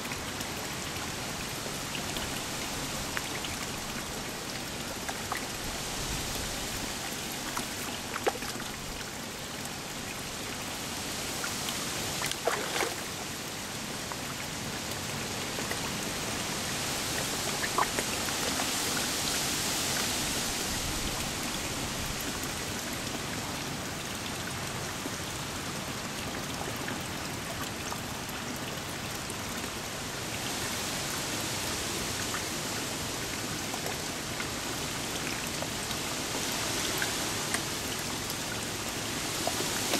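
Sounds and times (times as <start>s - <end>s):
fish splashing in pond: 0.5s - 10.6s, 11.2s - 14.3s, 16.6s - 20.0s.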